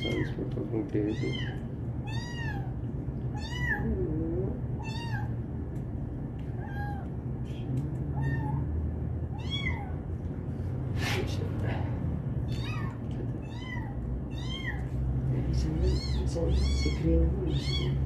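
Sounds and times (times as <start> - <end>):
kitten mewing: 0.0 - 5.4, 6.5 - 7.2, 8.1 - 8.7, 9.3 - 10.1, 12.4 - 15.0, 15.8 - 18.0
steady low hum: 0.0 - 18.0.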